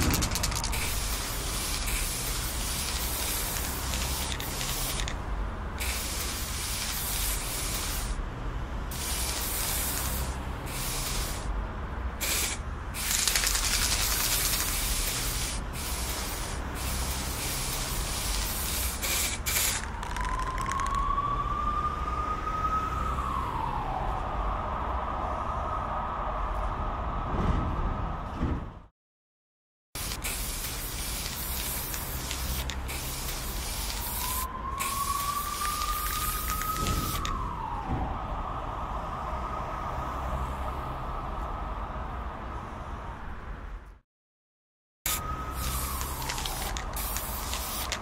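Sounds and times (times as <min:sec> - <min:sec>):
spray paint can hissing: 0:00.0 - 0:05.2, 0:05.8 - 0:08.2, 0:08.9 - 0:11.5, 0:12.2 - 0:21.0, 0:30.0 - 0:37.3, 0:45.1 - 0:48.0
rising whine: 0:33.9 - 0:41.2.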